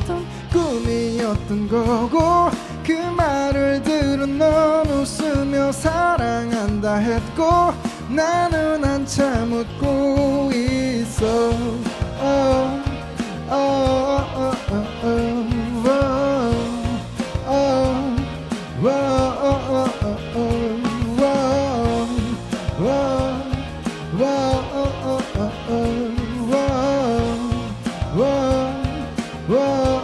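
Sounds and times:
instrumental backing with beat: 0.0 - 30.0
man singing into a microphone: 0.0 - 30.0.

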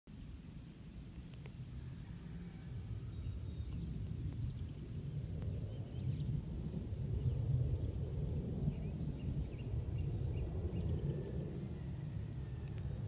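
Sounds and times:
distant jet engine rumble: 0.2 - 13.0.

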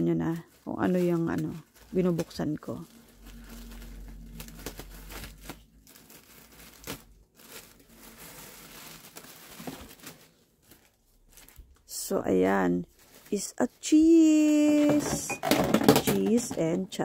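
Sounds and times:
plastic wrapping crinkling: 0.0 - 17.0
hands rummaging through cardboard box: 0.2 - 11.7.

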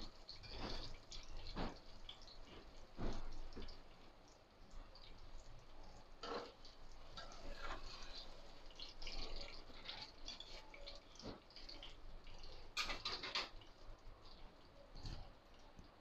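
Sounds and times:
hot oil crackling: 0.0 - 16.0
spatula scraping frying pan: 0.1 - 3.2, 6.2 - 13.7.

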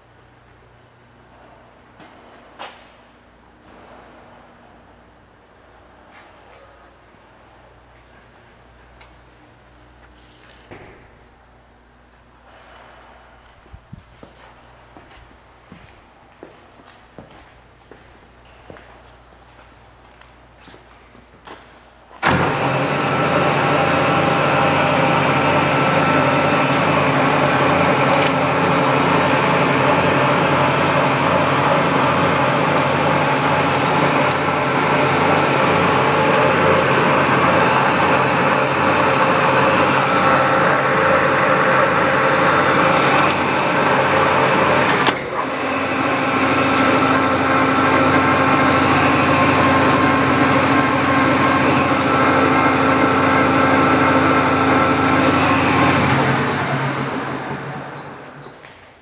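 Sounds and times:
lathe humming: 22.2 - 58.2.

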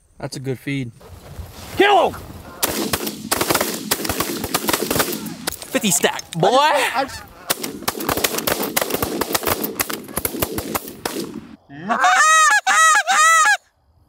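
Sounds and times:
goose call honks: 2.4 - 2.7, 6.7 - 7.6, 11.7 - 13.6
shotgun fire: 2.6 - 5.6, 7.5 - 11.6.

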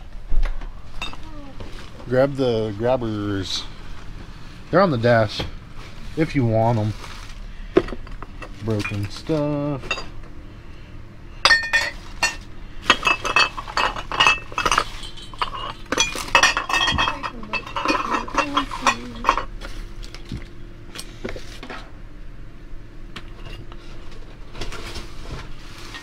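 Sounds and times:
junk clinking and clattering: 0.4 - 10.4, 11.4 - 22.0.

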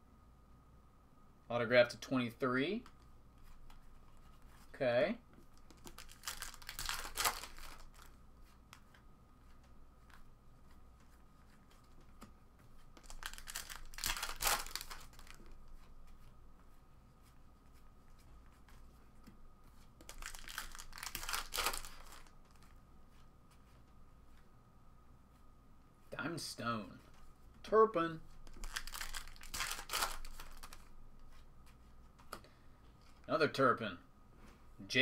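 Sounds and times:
cards being handled: 5.3 - 24.5, 28.2 - 33.3
foil wrappers tearing and crinkling: 5.9 - 8.1, 13.0 - 15.4, 20.0 - 22.3, 28.5 - 30.9.

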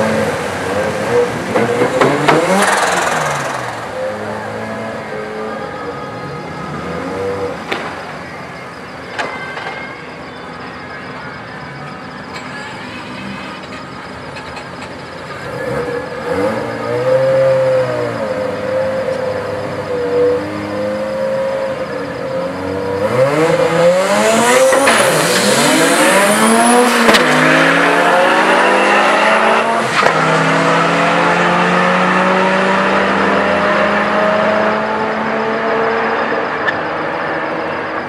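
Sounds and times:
rotary engine revving: 0.0 - 5.1, 23.0 - 37.4
second car engine: 0.0 - 38.0
faint high whistle: 2.7 - 27.1.

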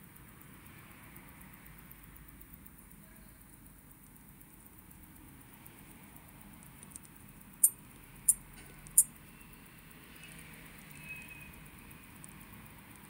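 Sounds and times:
faint ticks: 0.0 - 13.0
sharp high clicks of watch parts: 1.4 - 9.2.

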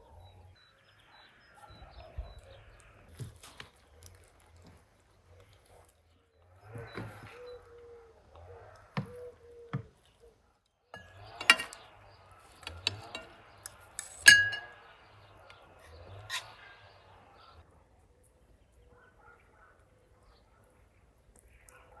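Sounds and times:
metal utensils clinking on plates: 11.0 - 14.9.

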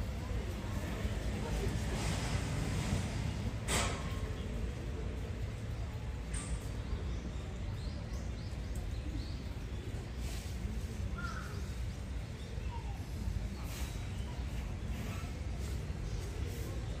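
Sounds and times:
faint bird calls: 9.9 - 16.9.

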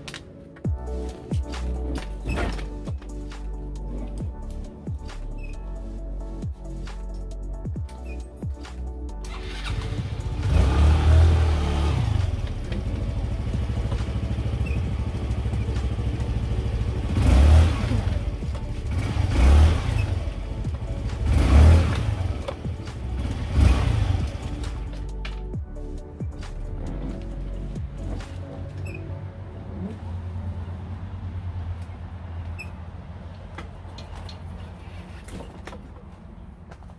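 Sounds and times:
scooter engine revving: 9.3 - 24.9.

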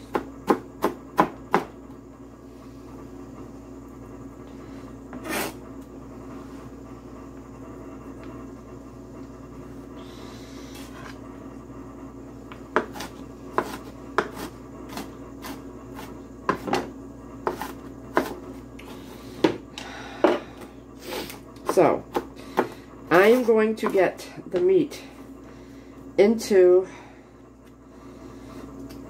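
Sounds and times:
steady low hum: 0.0 - 29.0
knife chopping on cutting board: 0.1 - 1.7, 12.7 - 18.4.

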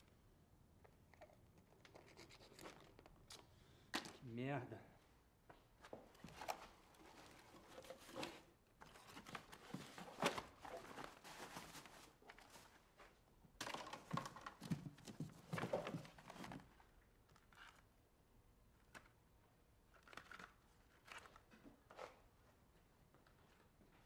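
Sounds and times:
rustling and scraping: 5.9 - 13.2.

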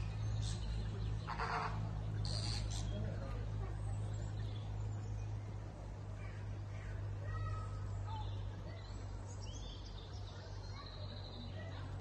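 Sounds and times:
flamingos nasal calls: 0.0 - 3.0
steady low hum: 0.0 - 12.0.

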